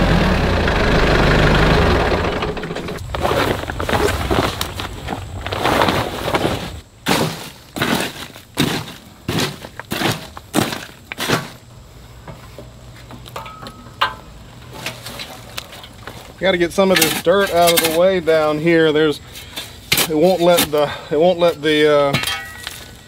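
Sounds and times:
tarp rustling: 3.0s - 11.6s
bark and debris scraped by hand: 16.9s - 18.2s.

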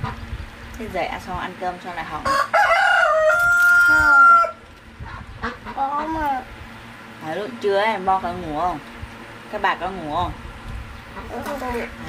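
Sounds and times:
rooster crowing: 2.2s - 4.6s
rooster clucking: 2.2s - 6.2s, 11.1s - 12.0s.

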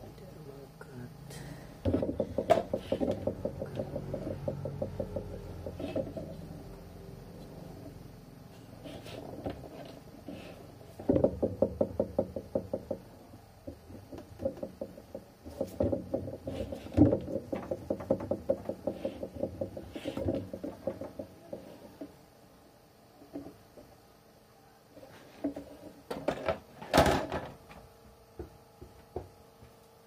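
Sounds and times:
rapid light knocks: 1.8s - 6.2s.

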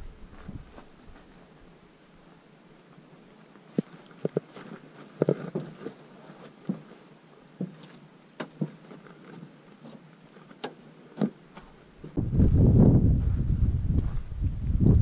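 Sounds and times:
footsteps on wooden planks: 3.8s - 14.3s.

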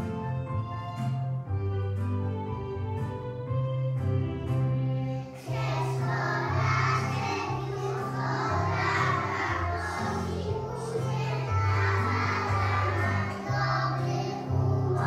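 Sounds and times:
instrumental backing track: 0.0s - 15.0s
children singing together: 5.3s - 15.0s.

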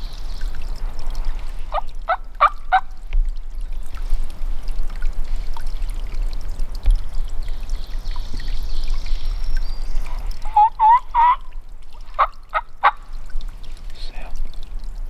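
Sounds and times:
low rumble and hiss: 0.0s - 15.0s
wild turkey calling: 1.7s - 2.9s, 10.0s - 13.1s.

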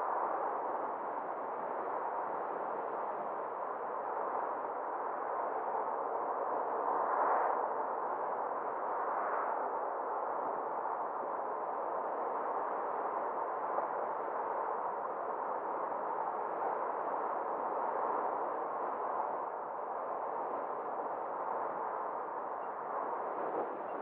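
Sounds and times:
car driving on road: 22.6s - 24.0s.

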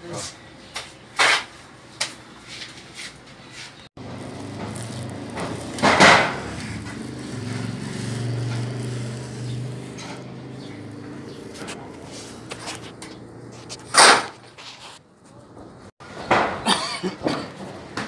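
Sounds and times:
vehicle engine hum: 4.0s - 14.0s.

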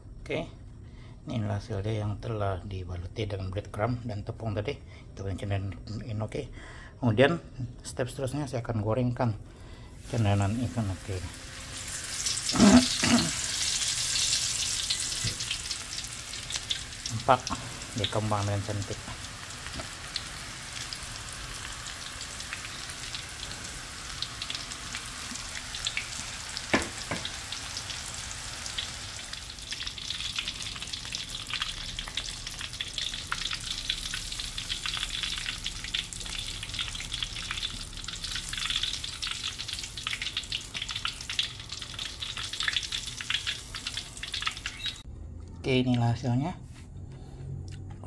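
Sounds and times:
mushrooms deep-frying in oil: 9.8s - 45.1s
sharp tap: 26.7s - 27.3s.

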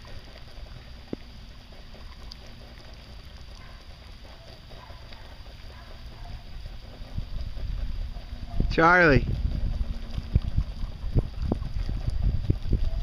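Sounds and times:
lawn sprinkler spray hiss: 0.0s - 13.0s
wind rumbling on microphone: 4.5s - 13.0s.

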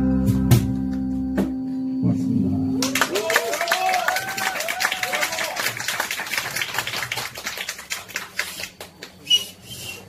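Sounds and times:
small audience clapping: 2.8s - 9.6s.

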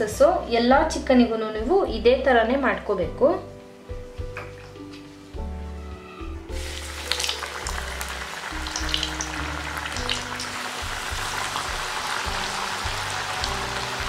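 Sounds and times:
chicken deep-frying in oil: 6.5s - 14.0s.

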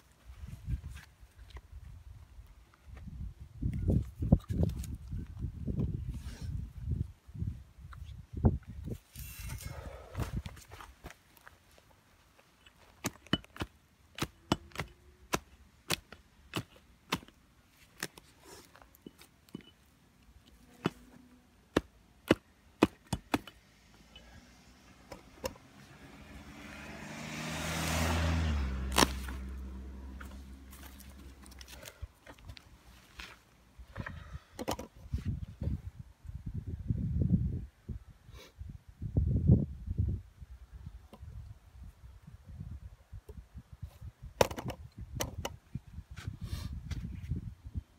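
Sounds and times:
hatchet chopping roots: 12.8s - 18.3s, 21.7s - 24.2s, 25.0s - 25.6s, 27.8s - 29.6s.

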